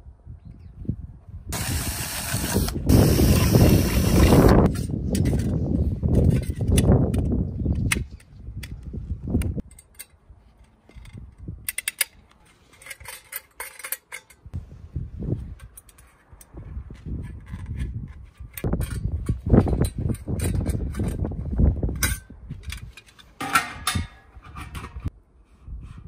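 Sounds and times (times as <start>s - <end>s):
drill cutting through steel: 1.6s - 4.7s
small metal parts clinking: 9.6s - 14.5s.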